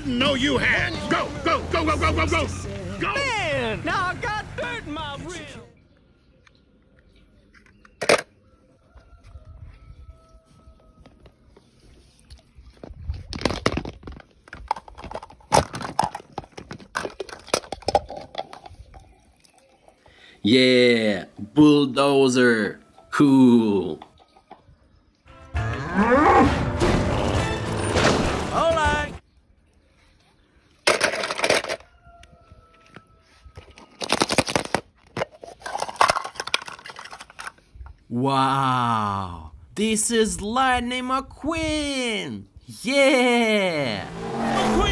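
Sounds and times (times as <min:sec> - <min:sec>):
toy cars clattering in plastic bucket: 0:13.4 - 0:19.0, 0:30.8 - 0:31.9, 0:33.9 - 0:37.7.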